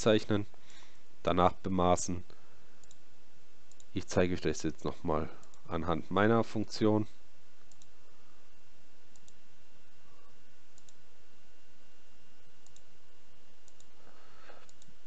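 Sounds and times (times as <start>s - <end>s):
computer mouse clicking: 2.8s - 3.0s, 3.7s - 3.9s, 7.6s - 7.9s, 9.1s - 9.4s, 10.8s - 11.0s, 12.6s - 12.9s, 13.6s - 15.0s.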